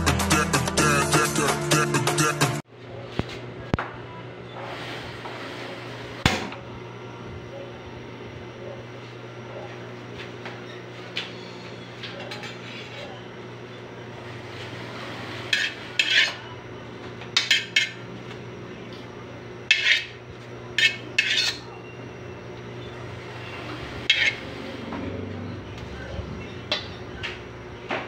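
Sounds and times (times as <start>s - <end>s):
steady low hum: 2.6s - 28.0s
metal ladle scraping a wok: 14.4s - 16.5s, 19.7s - 20.2s, 20.8s - 21.7s, 23.2s - 24.8s.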